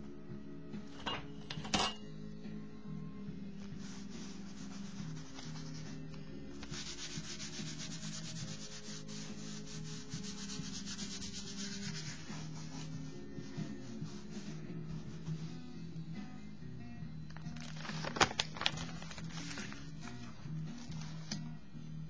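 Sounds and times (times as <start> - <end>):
soft background music: 0.0 - 22.0
tissue scrubbing on wet paper: 3.5 - 15.9.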